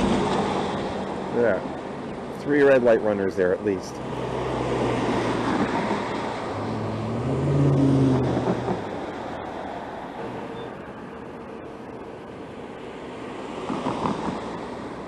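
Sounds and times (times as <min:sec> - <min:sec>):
steady traffic hum: 0:00.0 - 0:15.0
vehicle passing close: 0:04.0 - 0:10.4.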